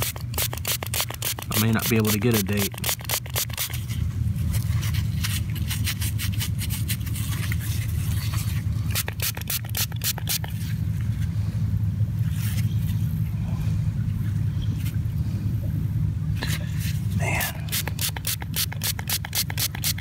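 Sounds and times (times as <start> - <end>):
thumb scraping a wet coin: 0.0 - 4.0, 4.6 - 10.7, 17.7 - 20.0
steady low rumble: 0.0 - 20.0.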